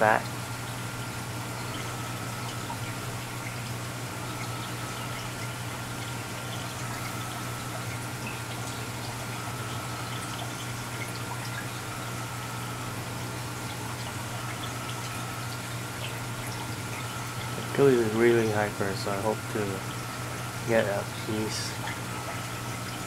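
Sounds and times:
aquarium water trickling and splashing: 0.0s - 23.0s
constant low hum: 0.0s - 23.0s
water drips: 0.1s - 23.0s.

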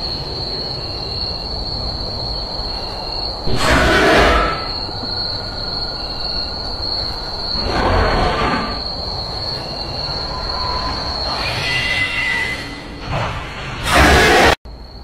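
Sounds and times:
loud screeching swells: 3.5s - 4.8s, 7.6s - 14.6s.

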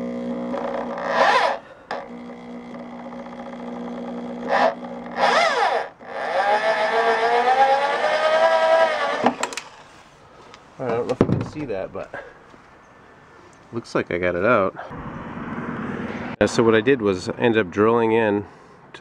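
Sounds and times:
electric drill motor whine: 0.0s - 9.8s.

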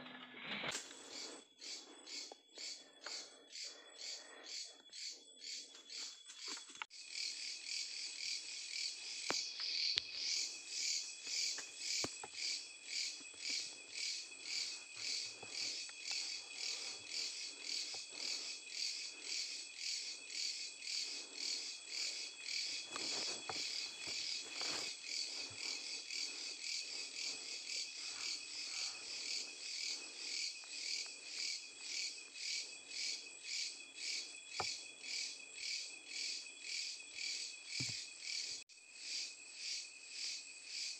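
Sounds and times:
cricket-like chirping: 0.7s - 40.9s
steady high insect trill: 0.8s - 40.9s.

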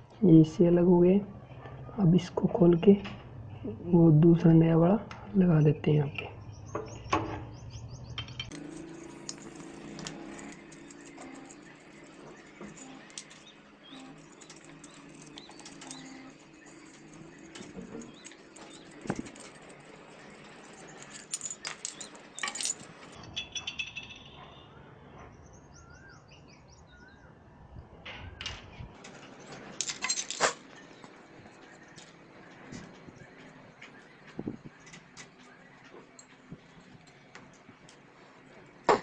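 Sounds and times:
metal parts clattering: 8.2s - 24.3s, 29.0s - 33.5s
small metal parts clinking: 8.2s - 24.4s, 29.0s - 33.5s.

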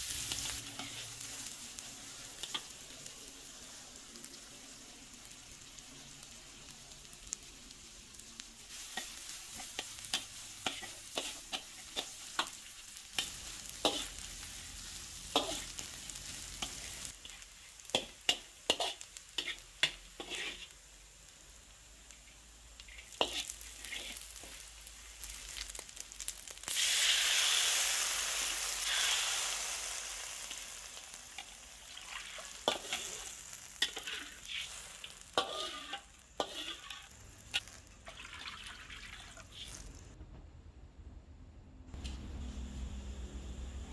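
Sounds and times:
food sizzling in oil: 0.0s - 40.2s
metal spatula scraping pan: 18.0s - 20.7s, 32.1s - 37.8s.

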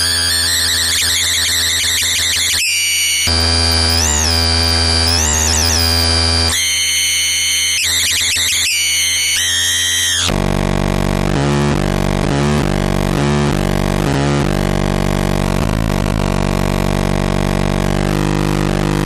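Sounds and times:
harsh buzzy synth tones: 0.0s - 19.0s.

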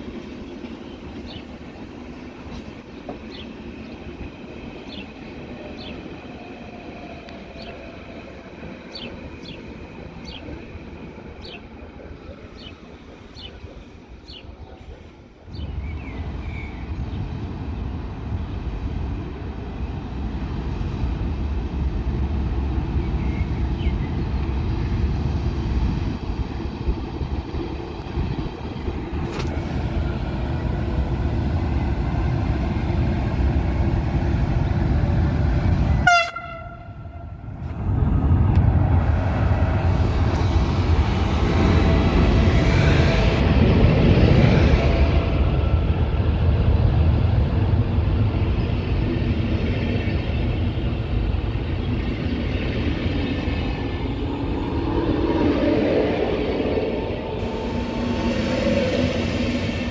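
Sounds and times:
train rumbling on rails: 0.0s - 59.9s
train horn toot: 36.0s - 37.4s.

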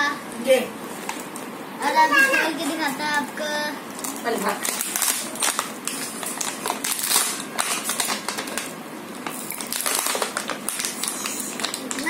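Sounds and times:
plastic packaging crinkling: 3.9s - 12.0s.

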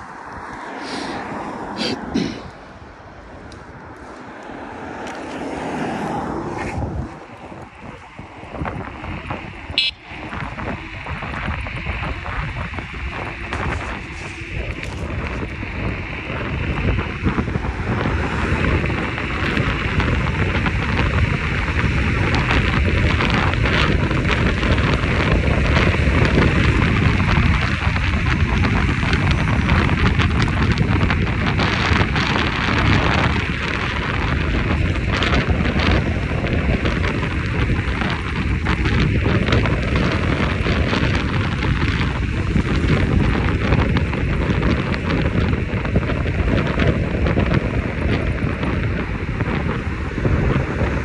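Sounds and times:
gusting wind buffeting microphone: 0.0s - 51.0s.

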